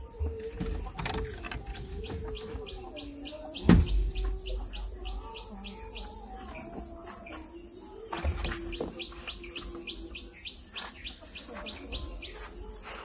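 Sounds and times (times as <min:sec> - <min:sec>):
loud thump: 0:03.6 - 0:04.2.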